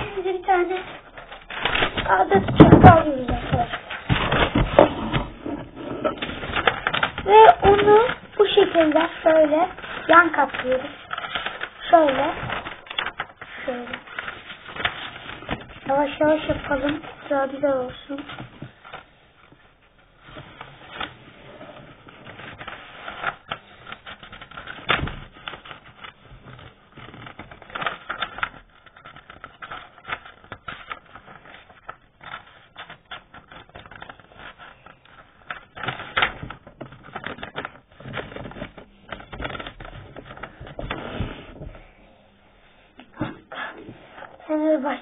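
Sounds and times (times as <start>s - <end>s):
paper rustling and crinkling: 0.0s - 42.0s.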